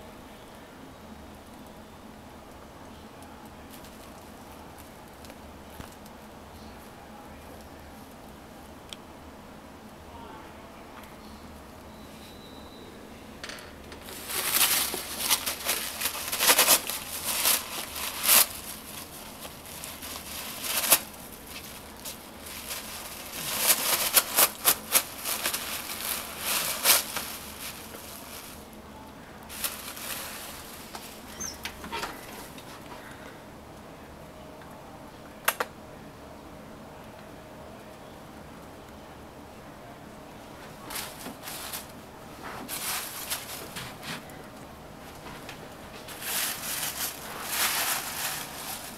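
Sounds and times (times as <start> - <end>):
cat tearing paper: 14.1 - 28.6, 46.1 - 48.9.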